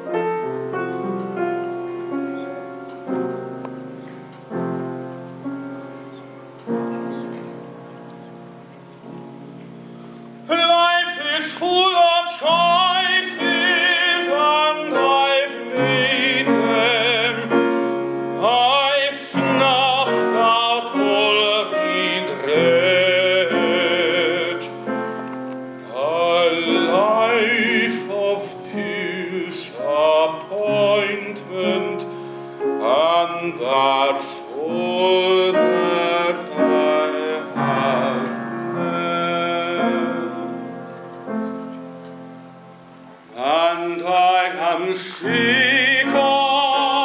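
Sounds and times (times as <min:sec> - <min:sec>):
piano accompaniment: 0:00.0 - 0:47.0
man singing operatically: 0:10.4 - 0:25.1, 0:25.8 - 0:40.7, 0:43.3 - 0:47.0.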